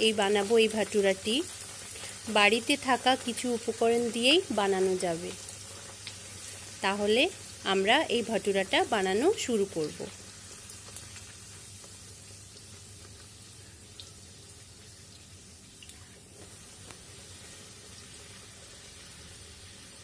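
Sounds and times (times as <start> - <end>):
deep-frying sizzle in oil: 0.0 - 20.0.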